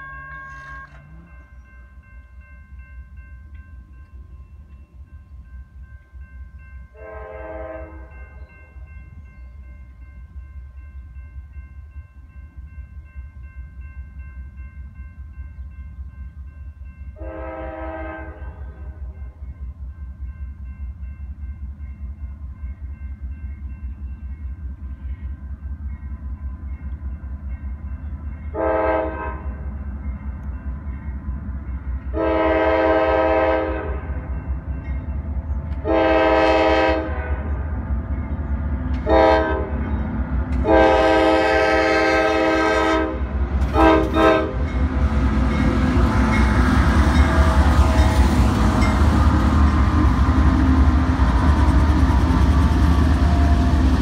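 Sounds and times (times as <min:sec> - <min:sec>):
locomotive air horn blasts: 0:00.0 - 0:01.4, 0:06.9 - 0:08.2, 0:17.2 - 0:19.2, 0:28.5 - 0:29.7, 0:32.1 - 0:34.2, 0:35.8 - 0:37.5, 0:39.0 - 0:39.8, 0:40.6 - 0:44.7
crossing signal bell ringing: 0:00.0 - 0:18.1, 0:44.6 - 0:50.2
train rumble: 0:00.0 - 0:54.0.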